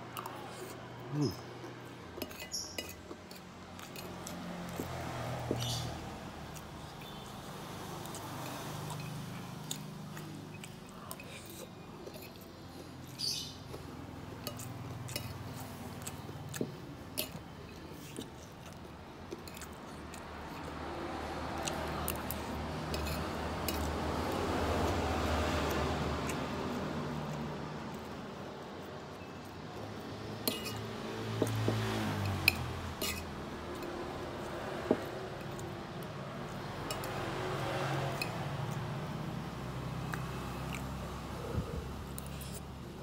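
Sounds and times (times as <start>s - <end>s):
person chewing: 0.0s - 43.0s
metal spoon scraping ceramic plate: 2.2s - 4.2s, 30.5s - 30.8s, 32.5s - 33.3s.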